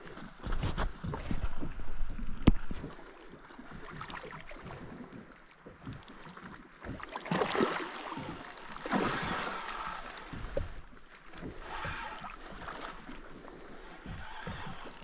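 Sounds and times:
fish thrashing and splashing water: 0:05.9 - 0:15.0.

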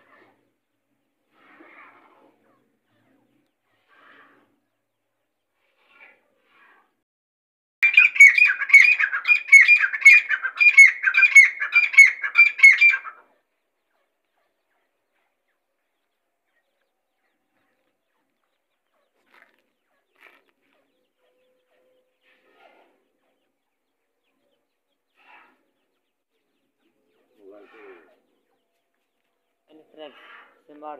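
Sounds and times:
bird calling shrill phrases: 0:07.8 - 0:13.2
faint bird chirps: 0:10.7 - 0:30.9.

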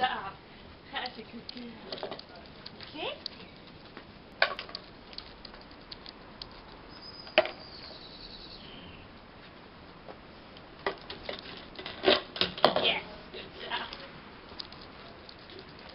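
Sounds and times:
bucket bumping against wooden deck: 0:10.8 - 0:13.0.

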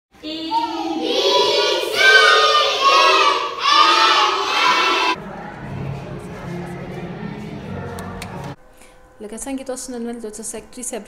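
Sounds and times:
children chanting in unison: 0:00.2 - 0:08.5.

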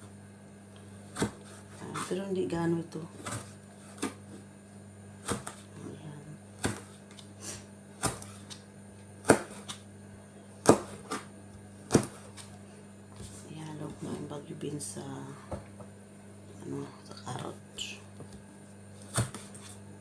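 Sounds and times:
knife chopping on cutting board: 0:01.1 - 0:02.2, 0:03.2 - 0:04.4, 0:05.2 - 0:05.7, 0:06.6 - 0:07.3, 0:08.0 - 0:08.6, 0:09.2 - 0:09.8, 0:10.6 - 0:12.5, 0:18.5 - 0:19.8.

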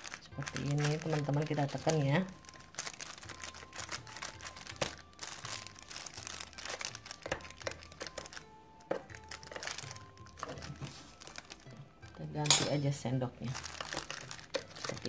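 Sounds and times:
plastic bag crinkling: 0:00.0 - 0:11.8, 0:13.4 - 0:15.0
faint music: 0:00.0 - 0:15.0.

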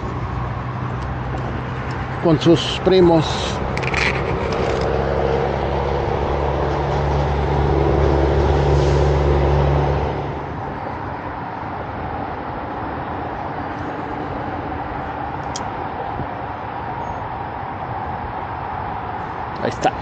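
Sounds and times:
broad rushing noise: 0:00.0 - 0:20.0
low engine hum: 0:00.0 - 0:20.0.

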